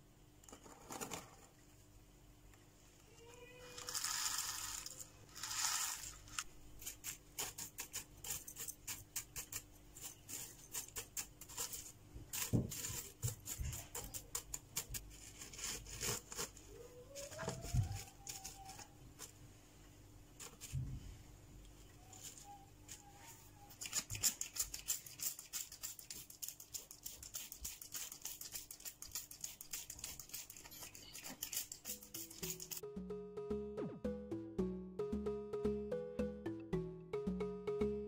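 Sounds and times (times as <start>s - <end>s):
pebbles pouring into a pot: 3.8s - 6.4s
stick tapping grit: 23.8s - 32.9s.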